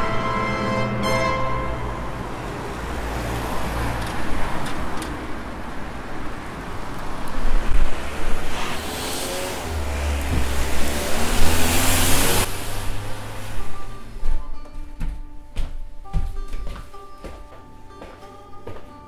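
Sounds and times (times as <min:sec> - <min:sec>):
cars passing: 0:00.0 - 0:18.9.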